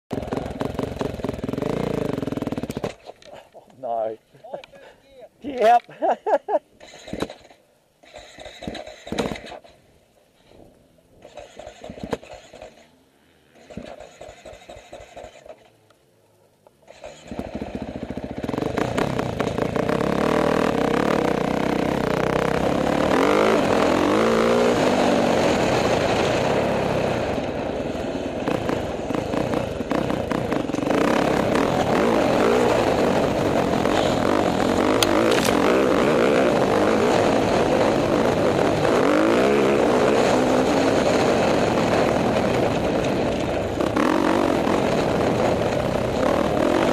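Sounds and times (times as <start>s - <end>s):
dirt bike engine revving: 0.1s - 3.0s, 11.2s - 15.7s, 16.8s - 46.9s.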